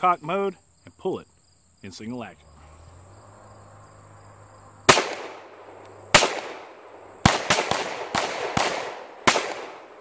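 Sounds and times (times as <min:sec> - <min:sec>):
pistol shots: 0:04.9 - 0:10.0.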